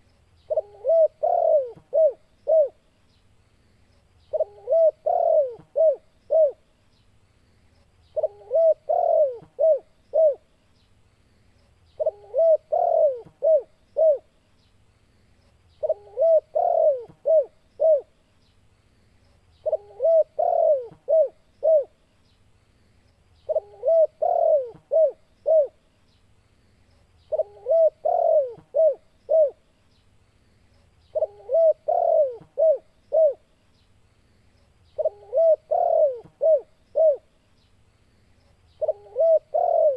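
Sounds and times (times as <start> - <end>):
dove cooing: 0.5 - 2.8, 4.3 - 6.7, 8.2 - 10.5, 12.0 - 14.3, 15.8 - 18.1, 19.6 - 22.0, 23.5 - 25.8, 27.3 - 29.6, 31.1 - 33.5, 35.0 - 37.3, 38.8 - 39.9.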